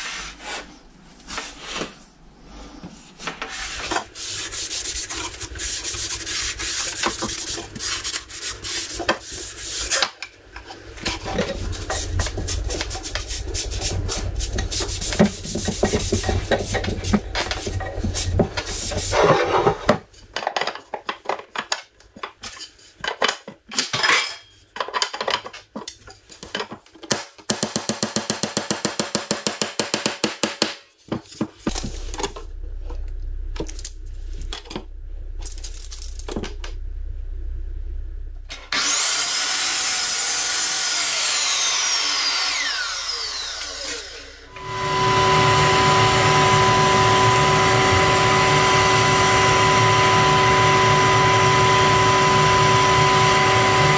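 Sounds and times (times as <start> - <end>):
rag rubbing wood: 3.5 - 10.0, 10.8 - 20.0
router running: 31.7 - 53.9.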